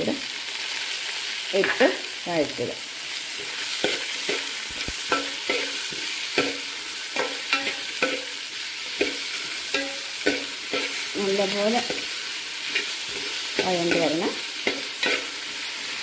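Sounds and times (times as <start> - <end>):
food sizzling in a pan: 0.0 - 16.0
metal spoon clinking on pan: 5.1 - 11.0, 12.7 - 15.4.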